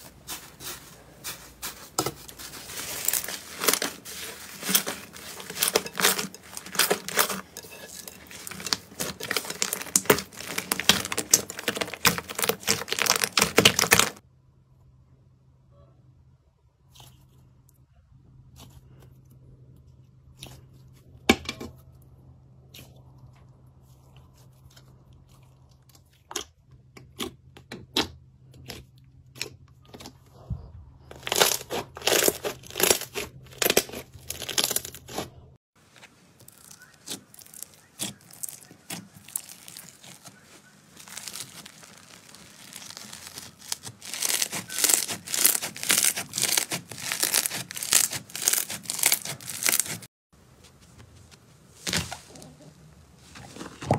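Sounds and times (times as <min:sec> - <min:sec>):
slime squeezed by hand: 0:36.5 - 0:50.1.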